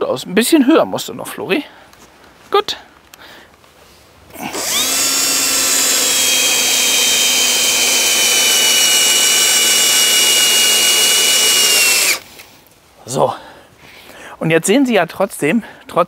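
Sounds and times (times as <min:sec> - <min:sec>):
electric drill whining: 0:04.4 - 0:12.3.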